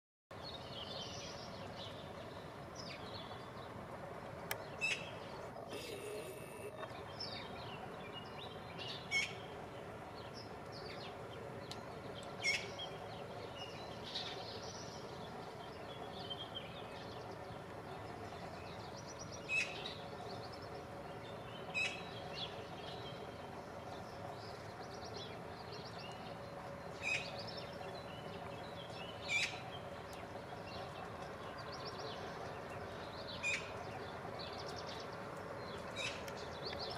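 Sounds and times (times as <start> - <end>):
small birds chirping: 0.4 - 36.9
magpie calls: 9.1 - 9.4.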